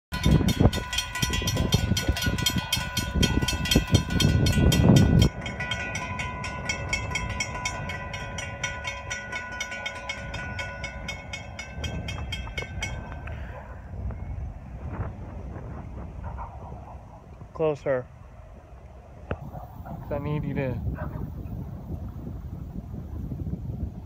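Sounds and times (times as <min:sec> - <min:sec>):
crossing bell ringing: 0:00.1 - 0:13.4.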